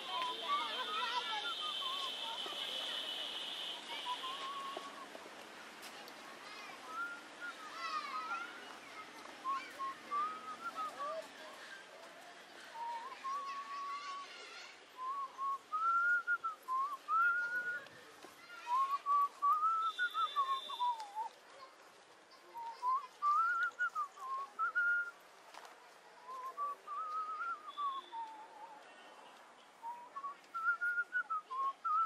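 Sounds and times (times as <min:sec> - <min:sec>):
man whistling a tune: 0:09.4 - 0:11.1, 0:15.0 - 0:17.8, 0:18.7 - 0:21.3, 0:22.6 - 0:25.1, 0:26.3 - 0:28.7, 0:29.8 - 0:32.0.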